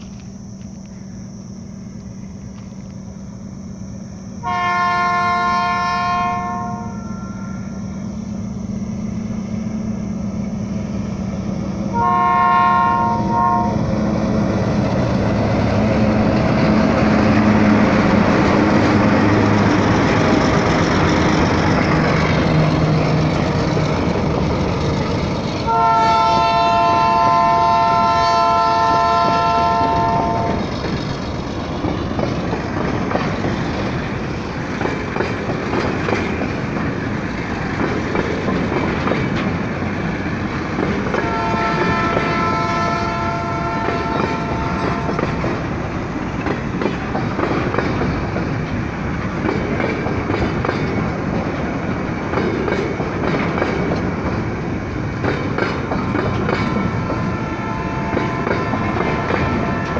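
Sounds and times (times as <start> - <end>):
locomotive air horn: 3.6 - 7.9, 11.9 - 14.1, 25.6 - 30.8, 41.1 - 45.6, 56.7 - 59.9
diesel engine hum: 6.8 - 59.9
train wheels clattering on rails: 13.8 - 59.9.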